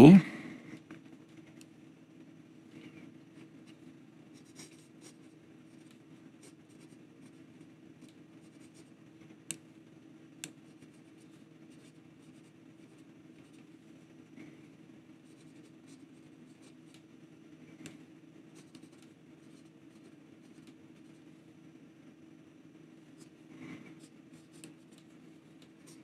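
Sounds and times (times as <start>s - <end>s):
pen scratching on paper: 4.3s - 8.9s, 10.5s - 13.8s, 15.2s - 17.0s, 18.5s - 21.2s, 23.2s - 26.0s.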